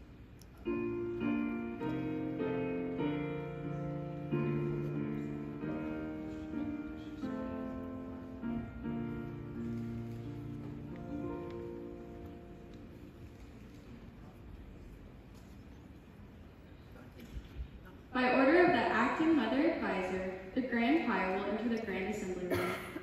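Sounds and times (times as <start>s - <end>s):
piano chords: 0.0s - 14.6s.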